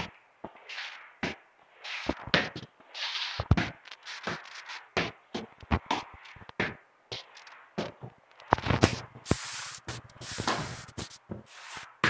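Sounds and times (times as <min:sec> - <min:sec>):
squeegee swishing on wet floor: 0:00.6 - 0:01.1, 0:01.7 - 0:03.4, 0:09.2 - 0:12.0.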